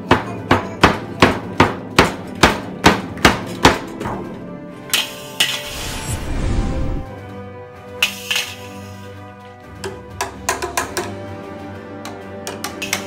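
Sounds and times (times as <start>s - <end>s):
rushing noise: 5.6s - 7.2s.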